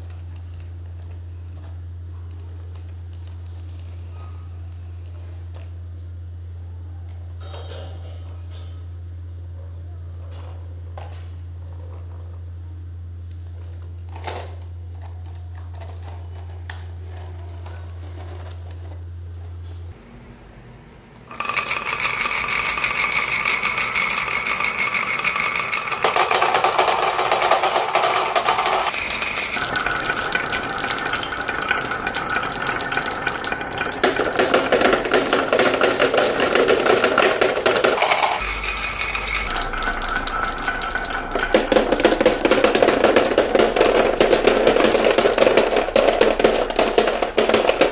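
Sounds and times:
marbles rattling down wooden track: 0:21.3 - 0:47.9
low hum: 0:38.0 - 0:47.9.

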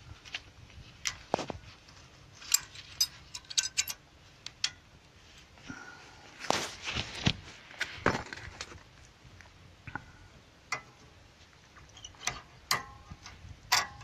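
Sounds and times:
metallic clicks and clinks: 0:02.4 - 0:04.0, 0:12.0 - 0:14.0.

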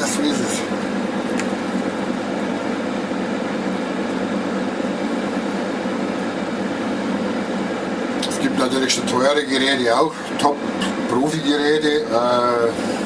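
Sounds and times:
air fryer fan blowing: 0:00.0 - 0:13.0.

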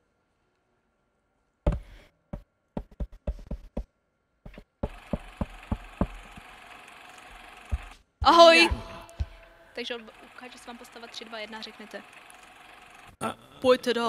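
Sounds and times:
footsteps on wooden floor: 0:01.7 - 0:06.5, 0:07.7 - 0:09.6.

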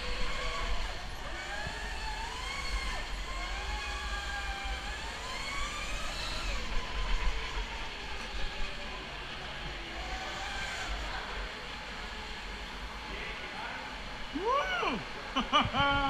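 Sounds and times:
electric motor whining: 0:00.0 - 0:09.1.

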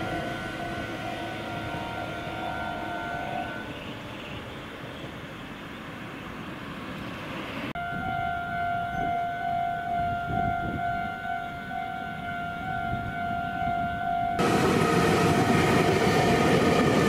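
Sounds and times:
level crossing warning bell: 0:00.0 - 0:04.2, 0:07.8 - 0:16.8.

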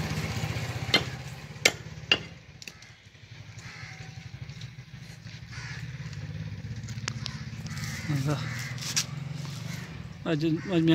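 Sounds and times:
small engine idling: 0:00.0 - 0:10.9
sharp clicks: 0:06.8 - 0:07.8.

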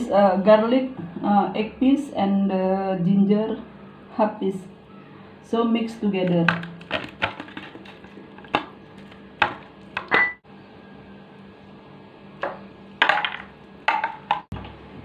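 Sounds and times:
hands mixing chicken in bowl: 0:06.3 - 0:10.1.

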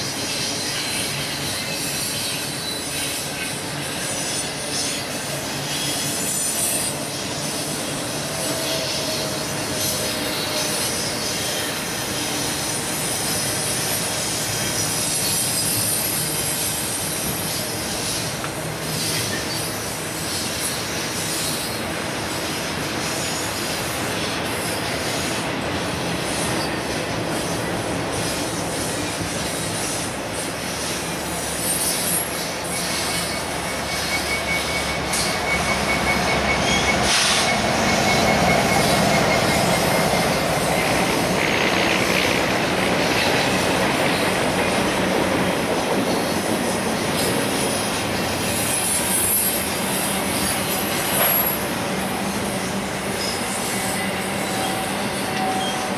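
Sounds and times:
thin wheel squeal: 0:00.0 - 0:18.3, 0:30.8 - 0:41.0, 0:48.4 - 0:51.7, 0:52.4 - 0:55.9
diesel locomotive passing: 0:00.0 - 0:55.9
freight train wheels rumbling: 0:00.0 - 0:55.9.

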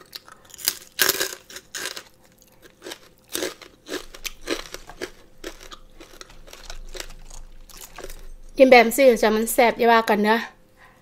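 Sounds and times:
crunchy chewing: 0:00.0 - 0:08.5.

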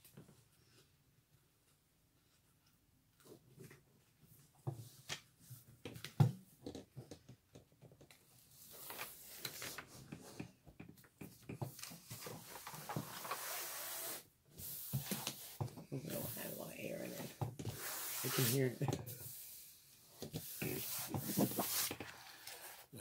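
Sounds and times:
hands rubbing across sheet: 0:13.2 - 0:19.7, 0:20.4 - 0:22.8.

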